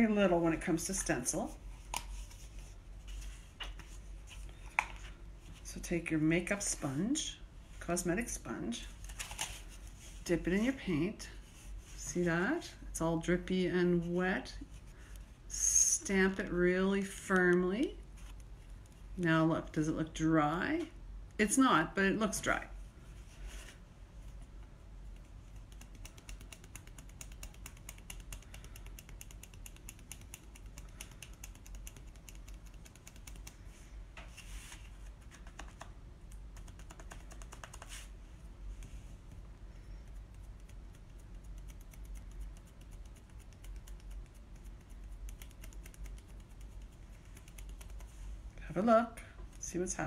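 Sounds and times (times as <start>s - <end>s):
rustling scrapes: 34.2s - 35.1s.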